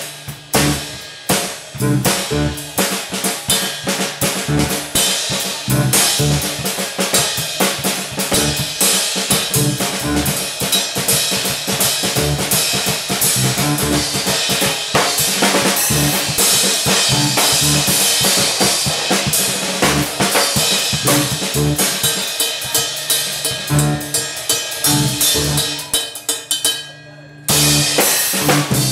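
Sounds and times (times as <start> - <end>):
electric bass notes: 0.0 - 22.1, 23.6 - 24.2, 24.8 - 25.9, 27.5 - 28.9
drum kit playing: 0.0 - 26.7, 27.5 - 28.9
cymbals: 0.0 - 28.9
keyboard playing: 0.5 - 1.0, 1.8 - 3.0, 4.1 - 6.8, 8.1 - 8.8, 9.4 - 10.5, 12.0 - 14.5, 15.8 - 18.3, 19.8 - 20.3, 20.9 - 22.0, 23.7 - 24.2, 24.9 - 26.0.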